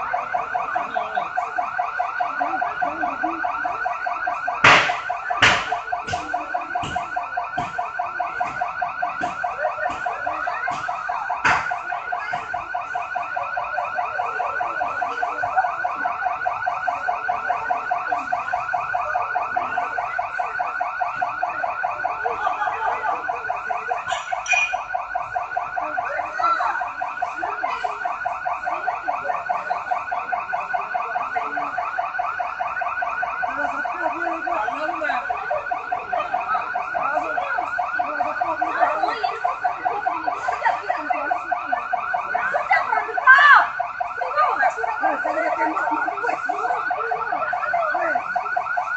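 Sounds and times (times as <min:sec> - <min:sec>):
security alarm ringing: 0:00.0 - 0:48.9
sharp bangs: 0:04.6 - 0:12.6.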